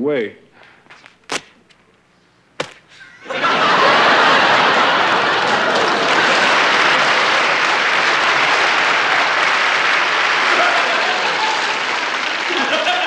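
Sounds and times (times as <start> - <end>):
audience applauding: 3.3 - 13.0.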